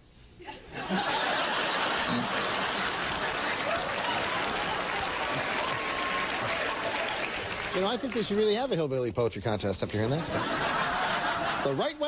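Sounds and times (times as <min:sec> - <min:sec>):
audience laughing: 0:00.6 - 0:06.8, 0:10.0 - 0:12.0
audience applauding: 0:00.9 - 0:08.8.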